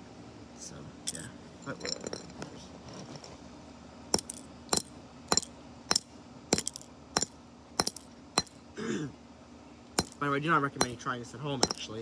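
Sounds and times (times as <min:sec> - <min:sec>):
hammer striking circuit board: 0:11.6 - 0:11.8.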